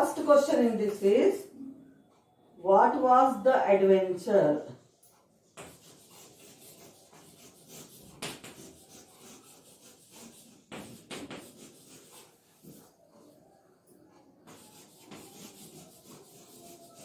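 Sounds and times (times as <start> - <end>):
chalk scratching on blackboard: 5.4 - 13.3, 14.4 - 17.0
chalk tapping on board: 5.5 - 12.9, 14.4 - 17.0.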